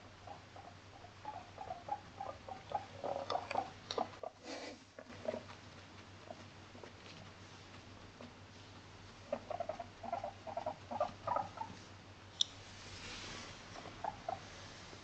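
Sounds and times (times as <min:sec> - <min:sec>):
guinea pig squeaking: 0:00.1 - 0:04.4, 0:05.0 - 0:05.6, 0:09.2 - 0:11.8, 0:13.7 - 0:14.5.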